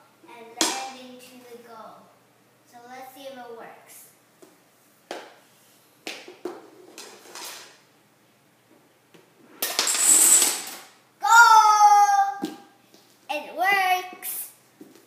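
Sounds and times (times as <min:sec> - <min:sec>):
dominoes toppling: 0:09.6 - 0:10.9
child squealing: 0:11.2 - 0:12.4.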